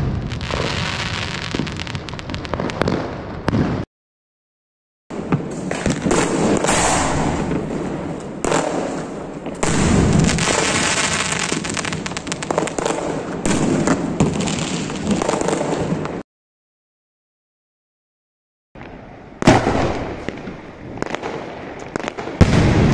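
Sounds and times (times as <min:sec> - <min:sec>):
firework bang: 0:00.0 - 0:03.9, 0:05.2 - 0:16.0, 0:19.4 - 0:21.4, 0:22.0 - 0:22.9
firework crackle: 0:00.0 - 0:03.9, 0:05.2 - 0:16.2.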